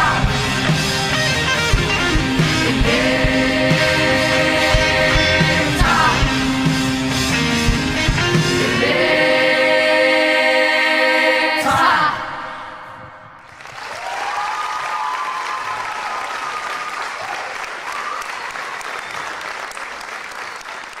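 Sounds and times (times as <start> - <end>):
band and singers holding chord: 0.0 - 13.3
audience applauding: 13.4 - 21.0
audience cheering: 13.5 - 21.0.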